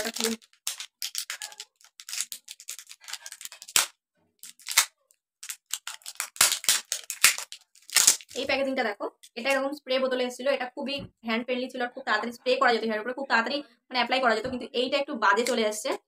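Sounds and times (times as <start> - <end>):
plastic packaging clicks and rustles: 0.0 - 8.4.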